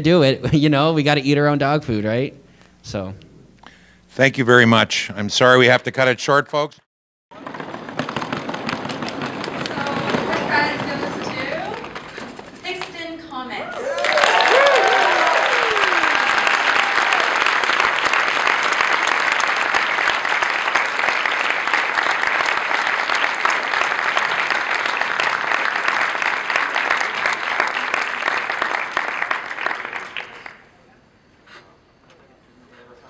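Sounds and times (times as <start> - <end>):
large audience applauding: 7.4 - 12.3, 13.7 - 30.7.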